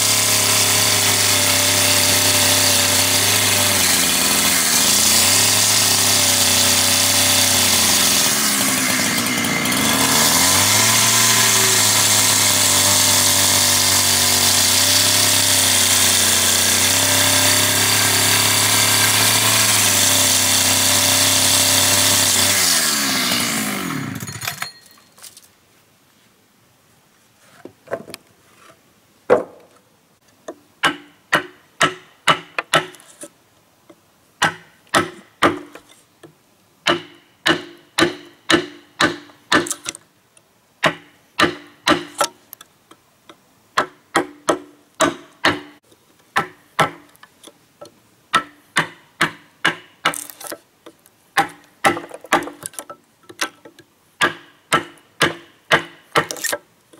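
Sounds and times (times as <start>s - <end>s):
power tool winding down: 19.2s - 24.6s.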